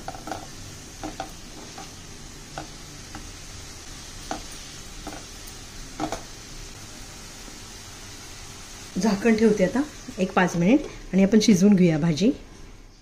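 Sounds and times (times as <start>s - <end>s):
spatula knocking and scraping pan: 0.0s - 3.3s, 4.2s - 5.4s, 6.0s - 6.3s
faint steady sizzle: 0.0s - 13.0s.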